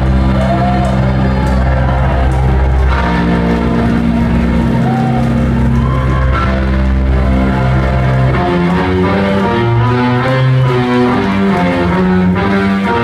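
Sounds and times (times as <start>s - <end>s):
electric guitar chords: 0.0s - 13.0s
live rock band playing: 0.0s - 13.0s.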